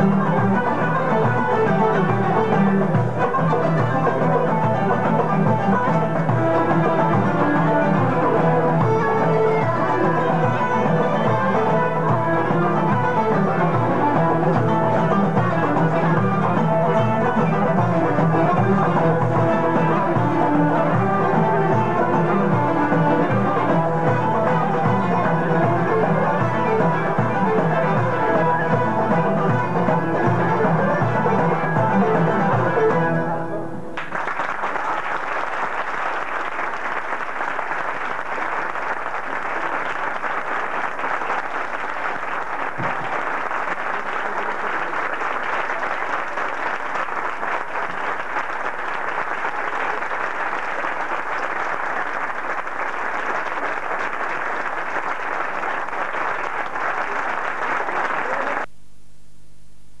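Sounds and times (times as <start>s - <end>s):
audience applause: 0.0s - 33.0s, 34.0s - 58.7s
plucked and bowed strings: 0.0s - 34.1s
faint low hum: 58.2s - 60.0s.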